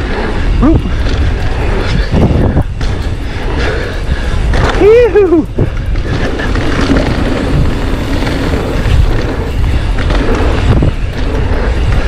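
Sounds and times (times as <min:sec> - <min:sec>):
bike tyre noise on dirt: 0:00.0 - 0:12.0
wind buffeting microphone: 0:00.0 - 0:12.0
bike knocking over bumps: 0:04.4 - 0:12.0.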